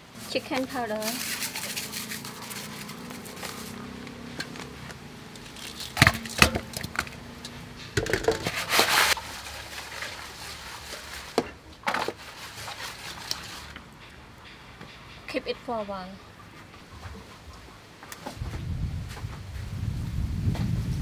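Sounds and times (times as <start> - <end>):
fish pieces sliding in basin: 0.9 - 4.0, 8.2 - 11.4
metal basin knocks: 8.0 - 8.6.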